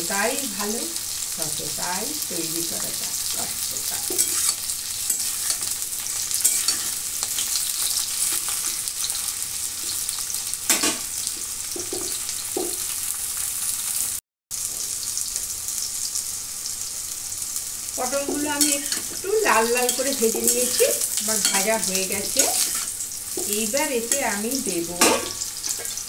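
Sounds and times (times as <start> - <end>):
vegetables sizzling in hot oil: 0.0 - 26.0
metal spatula scraping pan: 3.7 - 9.2, 18.6 - 24.3.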